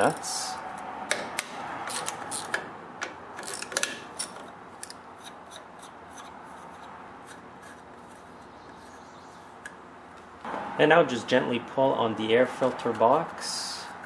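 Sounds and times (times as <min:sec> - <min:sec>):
socket ratchet clicking: 0:01.1 - 0:02.6, 0:03.4 - 0:05.7
nut turned by hand: 0:01.9 - 0:02.6, 0:03.4 - 0:09.0.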